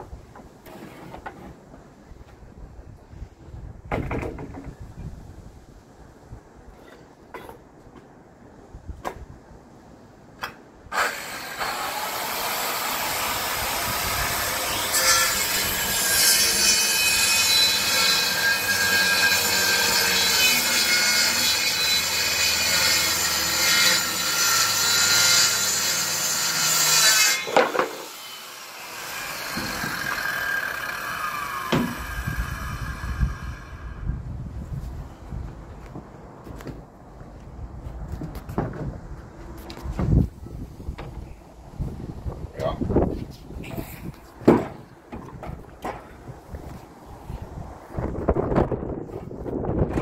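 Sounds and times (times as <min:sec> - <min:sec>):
circular saw cutting plywood: 0:10.9 - 0:34.0.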